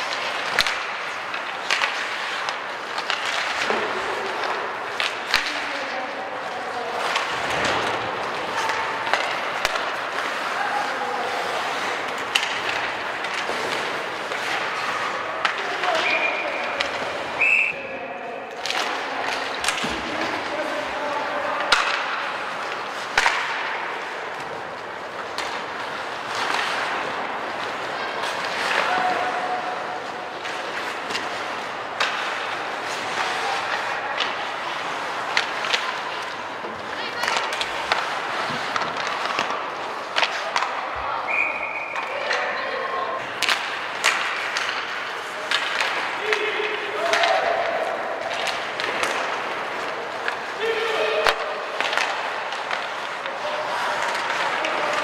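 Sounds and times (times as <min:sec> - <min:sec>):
skates scraping ice: 0:00.0 - 0:55.0
sticks and puck clacking: 0:00.0 - 0:55.0.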